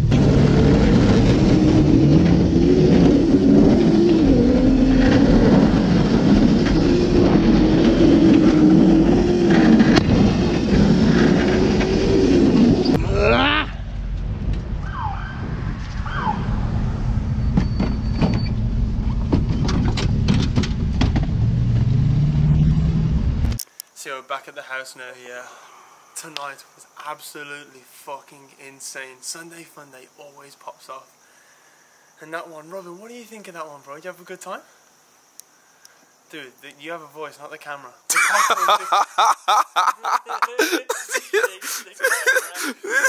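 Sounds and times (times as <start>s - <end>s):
kart motor whining: 0.0s - 13.0s
short squeaks and clicks: 17.5s - 18.6s.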